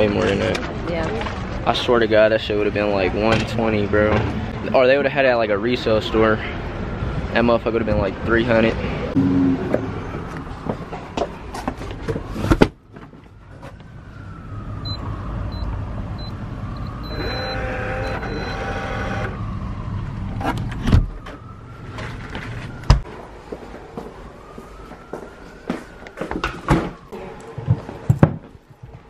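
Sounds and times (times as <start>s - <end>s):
distant siren wailing: 9.1s - 12.5s, 13.1s - 28.1s
short high beeps: 17.0s - 18.7s
deadbolt motor whirring: 17.1s - 19.4s.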